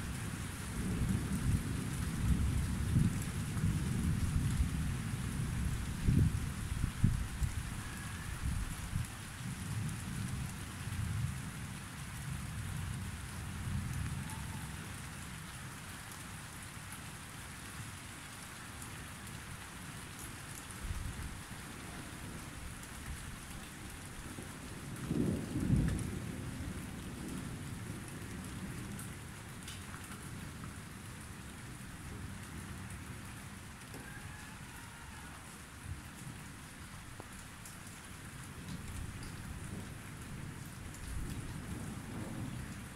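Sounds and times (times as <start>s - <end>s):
steady rain falling: 0.0s - 42.9s
rolling thunder rumbling: 24.2s - 29.3s, 38.7s - 42.9s.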